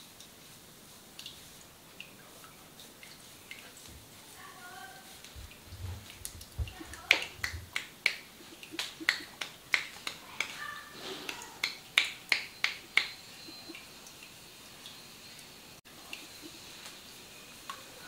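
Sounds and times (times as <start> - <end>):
hands snapping during head massage: 6.7 - 13.7.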